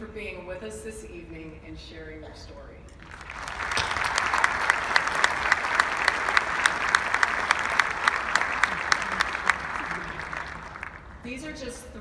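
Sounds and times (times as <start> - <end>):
sharp nearby claps: 3.0 - 11.0
audience applauding: 3.0 - 11.2.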